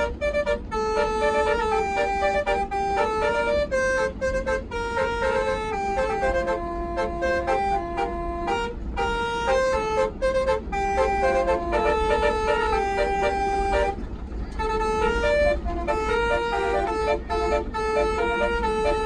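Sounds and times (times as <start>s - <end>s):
air horn playing melody: 0.0s - 19.0s
bus engine and road rumble: 0.0s - 19.0s.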